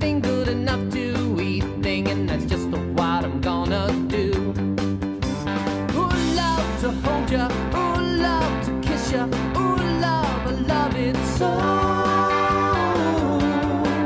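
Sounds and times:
upbeat tune with guitar: 0:00.0 - 0:14.0
person singing: 0:05.9 - 0:14.0.

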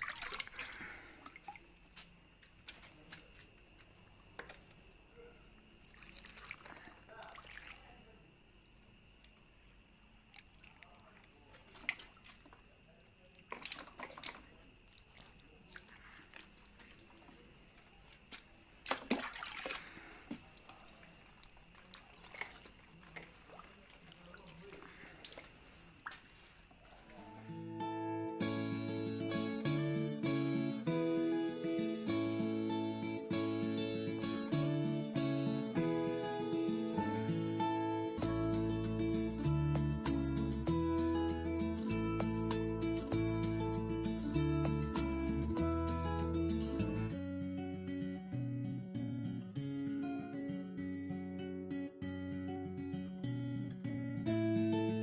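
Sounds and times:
water splashing and dripping: 0:00.0 - 0:04.8, 0:05.7 - 0:27.4.

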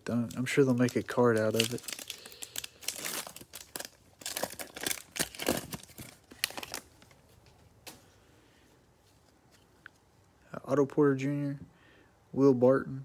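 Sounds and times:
foil wrapper tearing and crinkling: 0:00.1 - 0:07.0.

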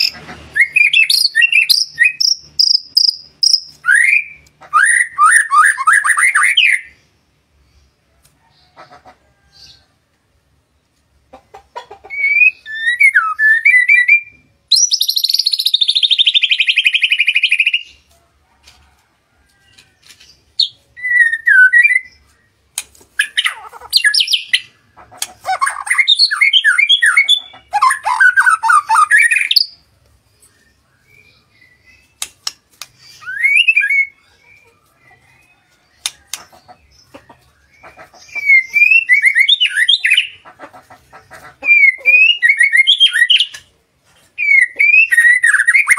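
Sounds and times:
songbird singing whistled phrases: 0:00.6 - 0:07.0, 0:12.1 - 0:17.9, 0:20.6 - 0:22.3, 0:25.5 - 0:29.8, 0:33.0 - 0:34.4, 0:38.3 - 0:40.3, 0:41.7 - 0:43.6, 0:44.4 - 0:45.9
sharp bird ticks: 0:01.7 - 0:03.8, 0:32.2 - 0:33.1.

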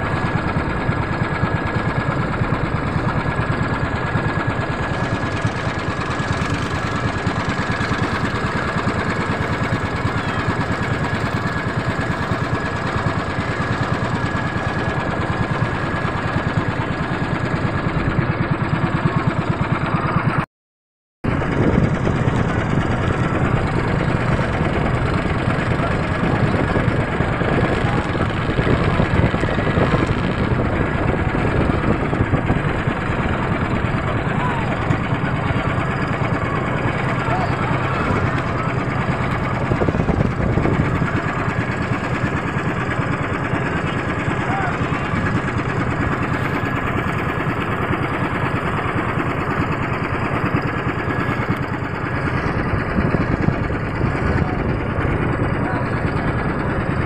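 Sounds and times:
motorboat engine running: 0:00.0 - 0:20.4, 0:21.2 - 0:57.0.

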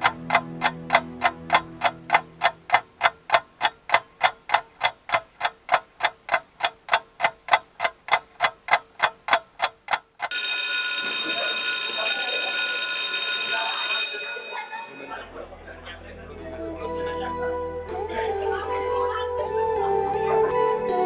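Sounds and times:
clock ticking quickly: 0:00.0 - 0:14.4.

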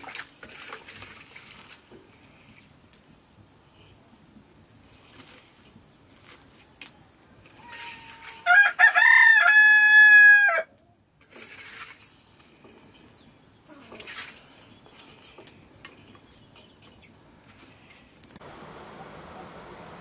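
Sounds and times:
rooster crowing: 0:07.6 - 0:10.7.

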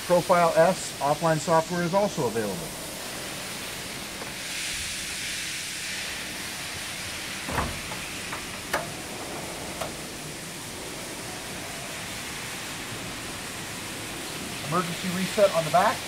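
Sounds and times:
steady hiss: 0:00.0 - 0:16.0
metal cabinet door thump: 0:07.5 - 0:08.8.

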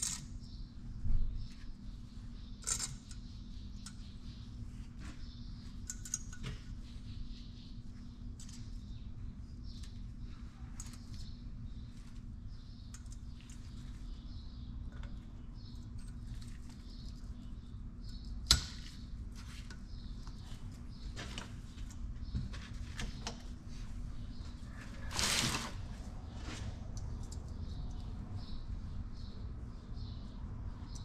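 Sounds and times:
steady low hum: 0:00.0 - 0:31.0
light metal clicks and squeaks: 0:02.6 - 0:04.3, 0:05.2 - 0:07.0, 0:14.8 - 0:19.0.

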